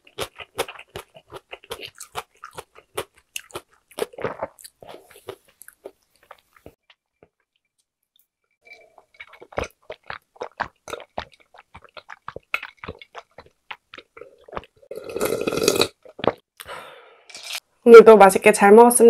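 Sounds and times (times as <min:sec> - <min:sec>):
person gulping: 0:08.7 - 0:17.5
loud breath out: 0:16.6 - 0:17.3.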